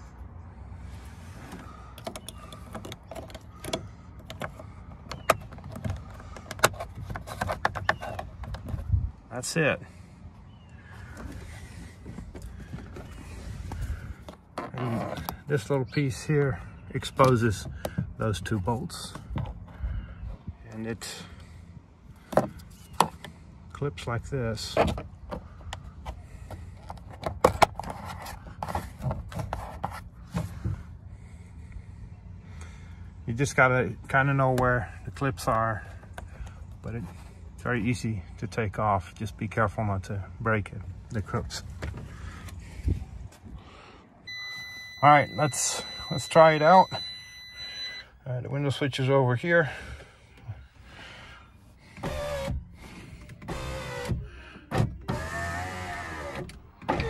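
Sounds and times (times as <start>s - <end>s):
plastic rubbing: 1.4s - 8.9s.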